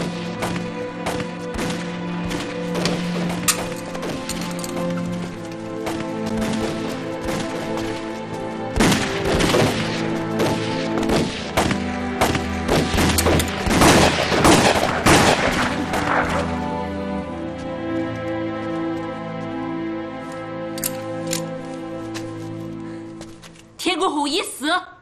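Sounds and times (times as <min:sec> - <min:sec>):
dramatic background music: 0:00.0 - 0:24.8
rifle gunfire volley: 0:08.8 - 0:16.4.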